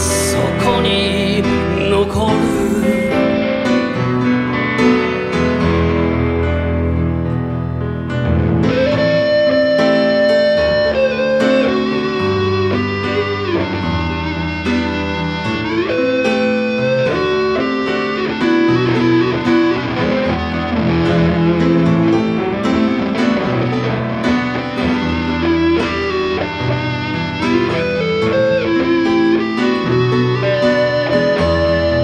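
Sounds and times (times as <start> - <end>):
electric guitar solo: 0.0 - 32.0
piano accompaniment: 0.0 - 32.0.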